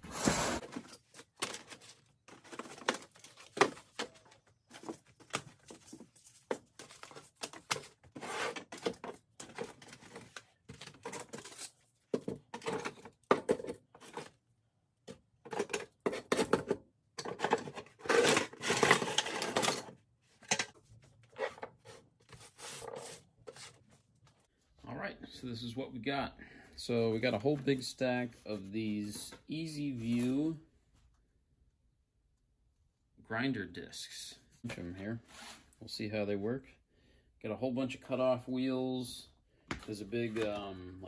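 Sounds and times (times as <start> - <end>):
paper packaging rustling: 0.6 - 12.0.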